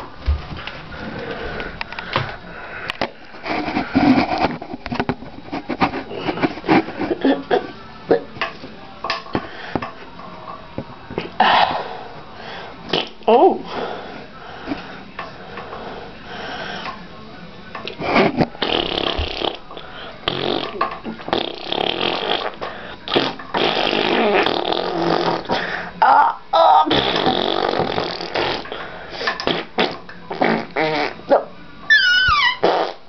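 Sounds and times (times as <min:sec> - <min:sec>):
spluttering fart noises: 0:12.9 - 0:13.2, 0:18.0 - 0:25.6, 0:26.6 - 0:28.8, 0:29.4 - 0:31.3, 0:31.9 - 0:33.0.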